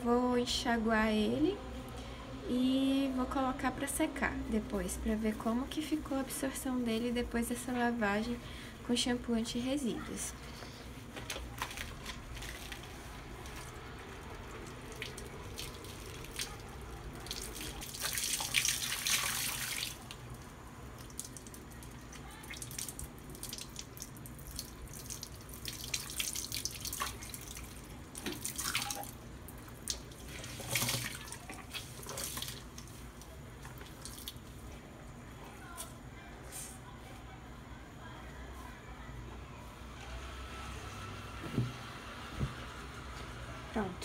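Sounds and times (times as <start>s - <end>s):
tap water splashing into sink: 24.5s - 32.9s.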